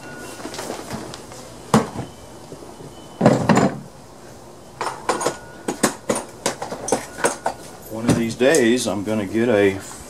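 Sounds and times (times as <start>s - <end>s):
toolbox clattering: 4.8s - 8.4s
metal tools clinking: 4.8s - 8.8s.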